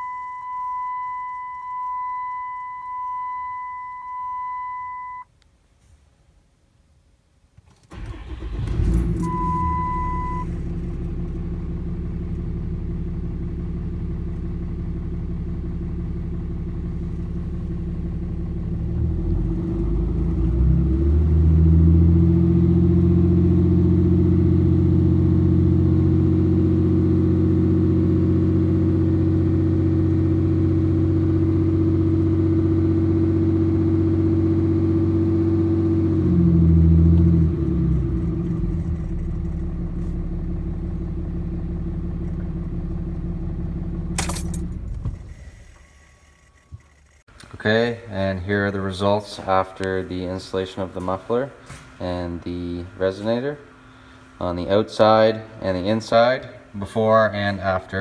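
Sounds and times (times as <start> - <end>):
short beep: 0.0 - 5.3, 9.1 - 10.6
diesel engine starting and revving: 7.8 - 56.5.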